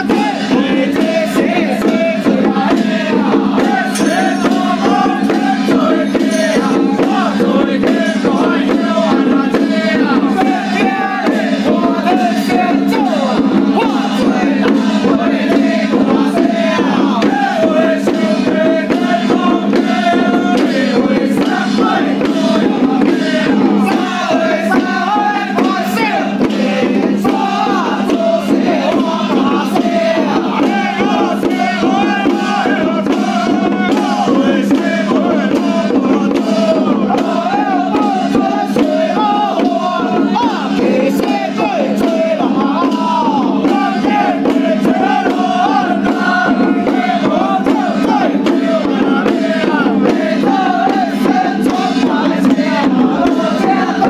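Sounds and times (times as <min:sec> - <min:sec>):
hand drums beating: 0:00.0 - 0:54.0
men chanting in unison: 0:00.0 - 0:54.0.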